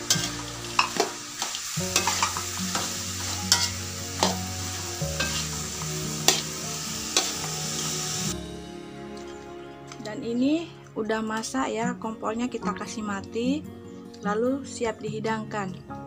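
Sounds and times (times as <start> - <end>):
frying sizzle: 0.0 - 9.6
metal spoon scraping a wok: 0.1 - 8.2.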